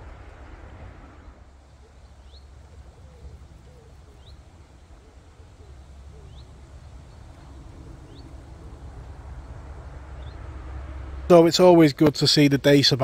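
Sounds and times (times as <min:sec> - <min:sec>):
steady low rumble: 0:00.0 - 0:13.0
high rising bird chirp: 0:01.2 - 0:10.7
lower wavering bird call: 0:01.7 - 0:11.0.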